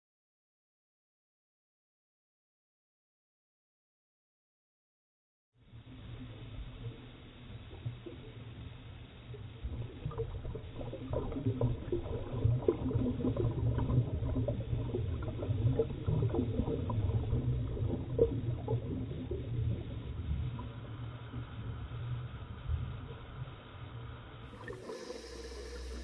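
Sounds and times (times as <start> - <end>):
scuba bubbles gurgling underwater: 5.7 - 26.0.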